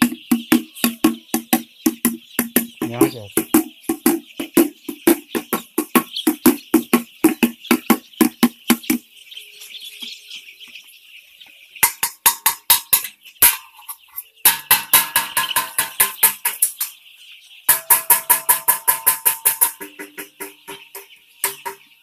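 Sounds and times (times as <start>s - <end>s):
music with fast drum beat: 0.0s - 9.0s
chicks peeping: 0.0s - 22.0s.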